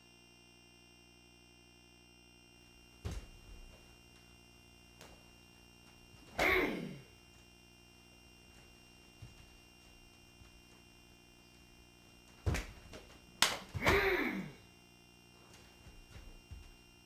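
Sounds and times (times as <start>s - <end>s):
uniform snapping: 12.3s - 14.1s.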